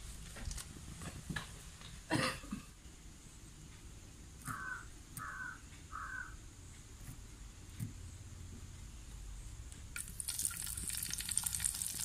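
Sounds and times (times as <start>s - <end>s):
crow cawing: 4.4s - 6.4s.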